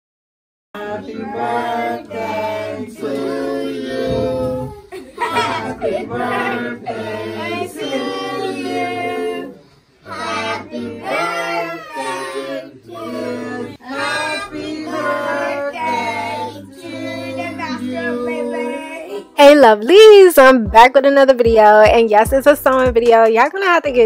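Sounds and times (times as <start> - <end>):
children and women singing: 0.8 - 19.4.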